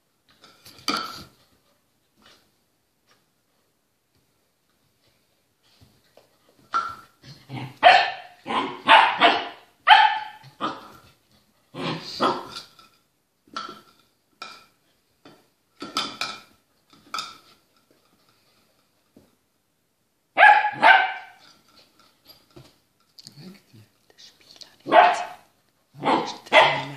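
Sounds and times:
puppy barking: 7.8s - 10.9s, 20.4s - 21.4s, 24.9s - 26.9s.

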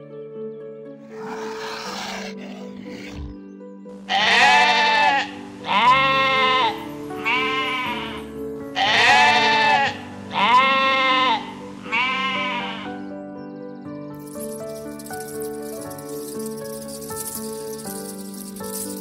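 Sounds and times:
soft background music: 0.0s - 19.0s
animal calling: 1.1s - 3.4s, 8.8s - 12.9s.

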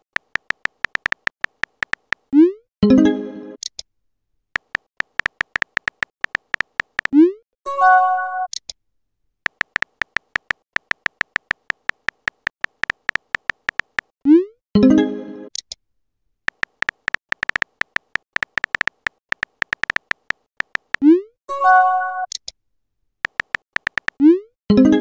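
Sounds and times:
keyboard tap clicks: 0.1s - 2.3s, 4.6s - 7.1s, 9.5s - 14.1s, 16.5s - 21.0s, 23.2s - 24.2s.

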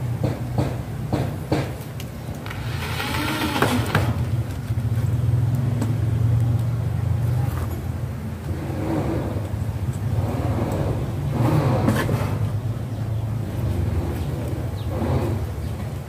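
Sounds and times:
knocks: 0.2s - 1.8s.

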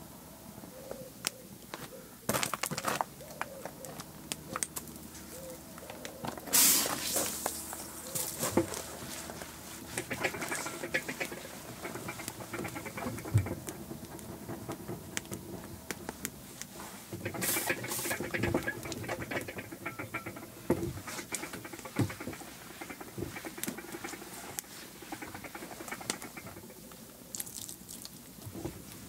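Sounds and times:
hose nozzle spray: 6.5s - 8.4s.

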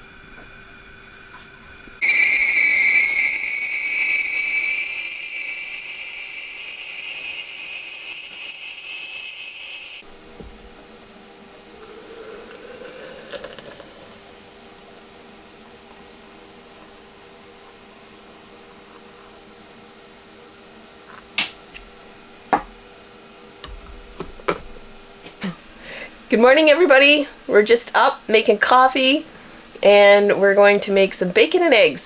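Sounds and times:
kettle whistling: 2.0s - 10.1s.

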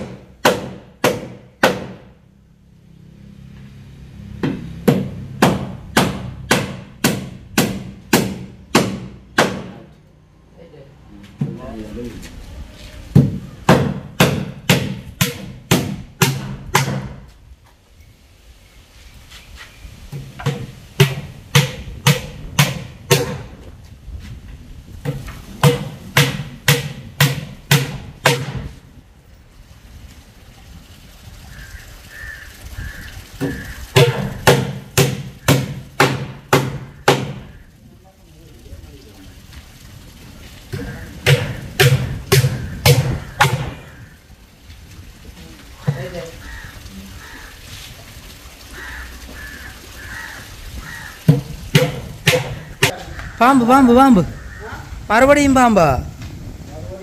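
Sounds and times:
hammer driving nail into wood: 0.0s - 2.1s, 4.4s - 9.8s, 20.4s - 23.4s, 25.1s - 28.7s, 41.2s - 43.8s.

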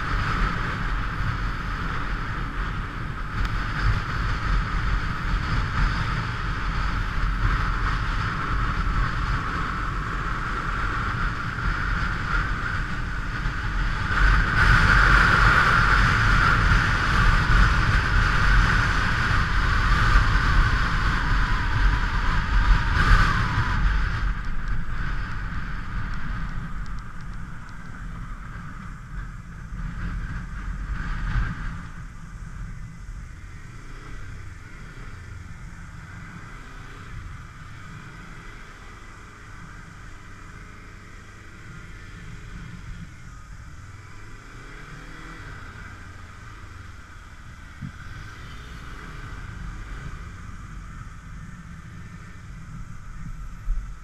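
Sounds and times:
wind rush: 0.0s - 40.3s
motorcycle engine: 0.0s - 54.0s
road noise: 0.0s - 54.0s.

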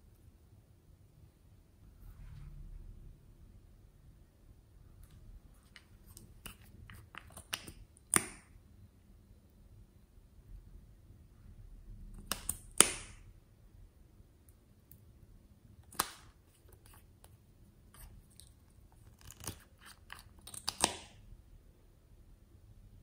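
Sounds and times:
plastic tube caps clicking: 5.7s - 8.4s, 19.0s - 21.2s.

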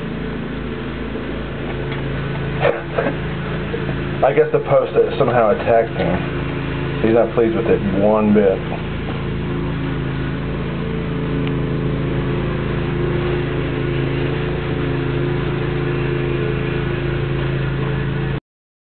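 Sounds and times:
machine humming: 0.0s - 18.4s.

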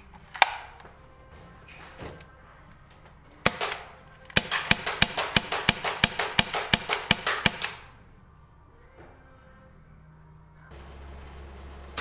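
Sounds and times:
gas pistol shots: 3.4s - 7.9s.

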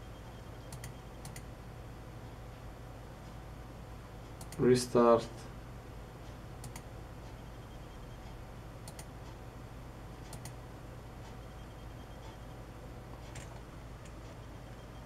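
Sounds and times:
low steady hum: 0.0s - 15.0s
computer mouse clicks: 0.6s - 1.5s, 4.4s - 4.6s, 6.6s - 6.9s, 8.8s - 9.1s, 10.2s - 10.6s, 13.2s - 14.8s.

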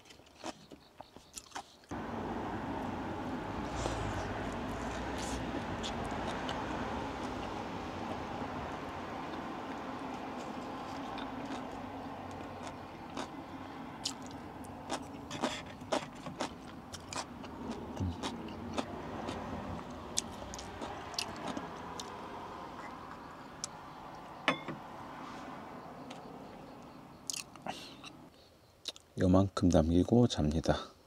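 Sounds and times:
tableware clicking and clinking: 24.5s - 24.8s.

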